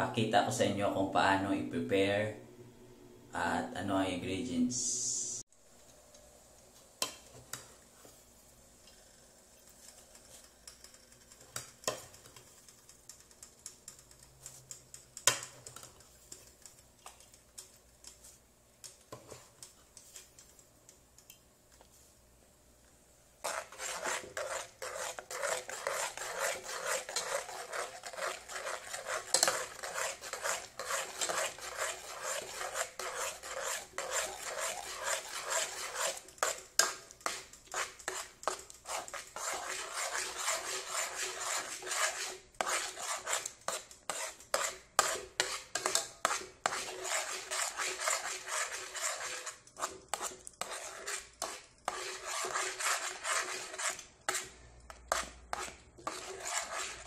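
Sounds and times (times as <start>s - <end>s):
metal spoon scraping pot: 23.4s - 57.0s.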